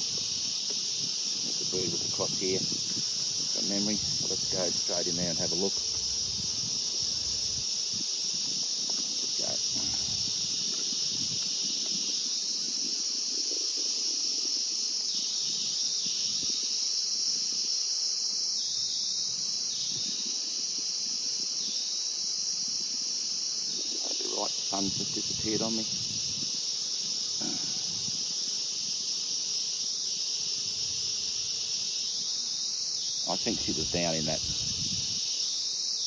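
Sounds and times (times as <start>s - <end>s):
hive frame handling noise: 0.0s - 13.4s
honey bees humming: 0.0s - 36.0s
insects shrilling: 0.0s - 36.0s.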